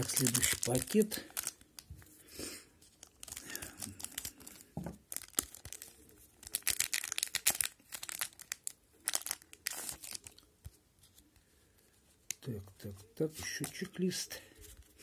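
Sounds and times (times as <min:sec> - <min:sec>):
card pack wrapper crinkling: 0:00.0 - 0:02.0, 0:02.8 - 0:11.3.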